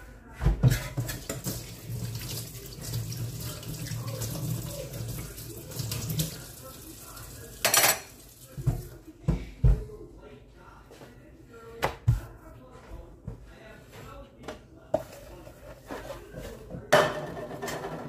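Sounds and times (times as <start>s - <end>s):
cutlery clinking: 7.6s - 8.2s.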